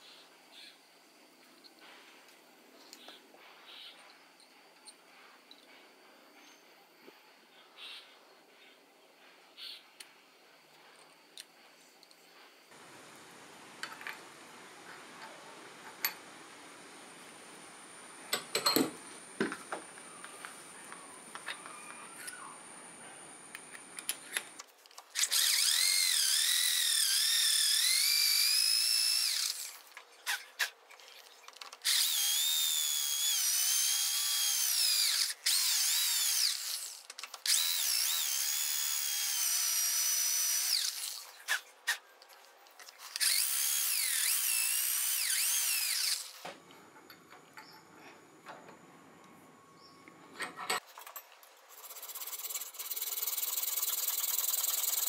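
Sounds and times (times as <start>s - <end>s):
drill bit whining into metal: 25.2s - 29.8s, 31.9s - 41.2s, 43.2s - 46.4s.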